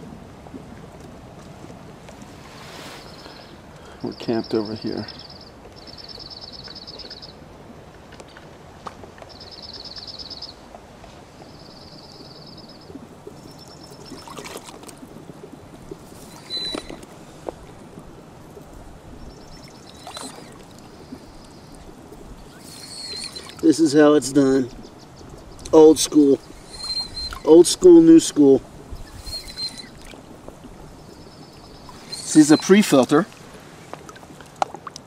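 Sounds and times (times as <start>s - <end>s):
water splashing and gurgling: 11.4s - 35.0s.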